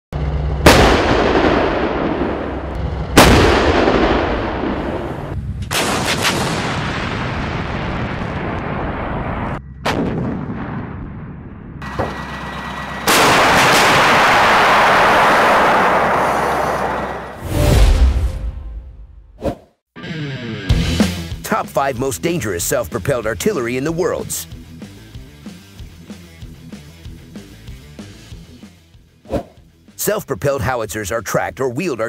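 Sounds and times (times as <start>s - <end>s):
heavy gun blasts: 0.6s - 12.3s, 13.0s - 18.2s
rolling rumble: 6.6s - 17.4s.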